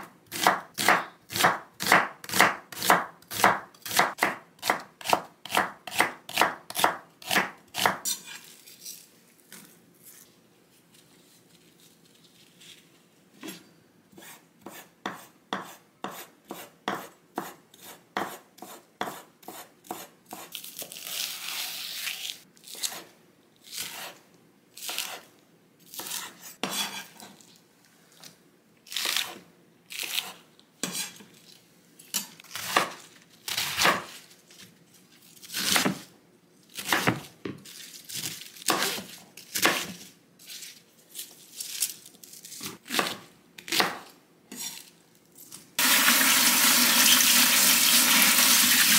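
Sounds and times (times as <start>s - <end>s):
knife chopping on wooden board: 0.3s - 8.1s, 14.2s - 20.5s, 36.8s - 37.6s, 42.9s - 44.6s.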